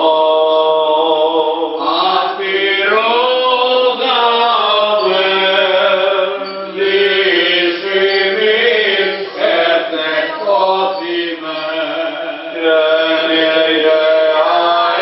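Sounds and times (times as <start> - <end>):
person chanting melismatic line: 3.2 - 15.0.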